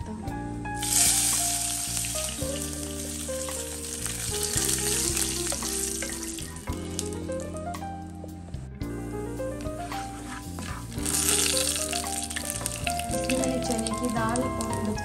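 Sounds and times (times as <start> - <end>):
background music: 0.0 - 15.0
wooden spatula stirring in wok: 0.8 - 7.2, 9.6 - 14.9
leaves sizzling in hot oil: 0.8 - 7.6, 9.8 - 15.0.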